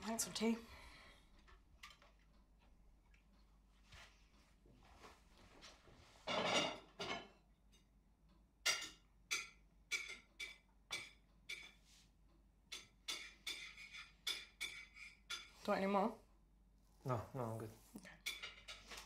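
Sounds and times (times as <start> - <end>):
crockery clattering: 6.2 - 7.4, 18.2 - 19.0
cutlery clinking: 6.2 - 7.9, 8.6 - 11.8, 12.7 - 15.6, 18.2 - 19.0.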